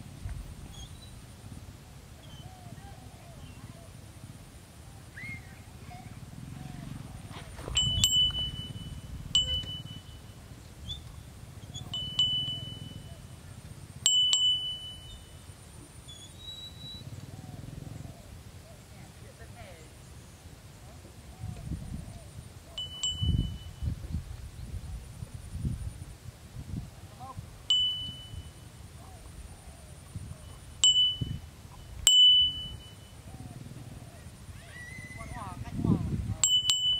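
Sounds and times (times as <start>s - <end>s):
wind rumble on microphone: 0.0s - 15.4s, 21.0s - 36.9s
small metal bell ringing: 7.7s - 10.4s, 11.8s - 13.4s, 14.0s - 15.5s, 22.8s - 23.9s, 27.7s - 28.8s, 30.6s - 33.3s, 36.4s - 36.9s.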